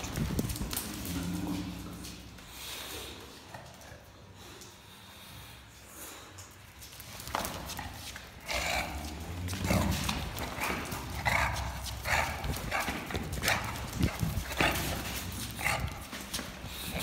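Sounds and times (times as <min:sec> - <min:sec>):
dog grunting and huffing: 0:07.8 - 0:17.0.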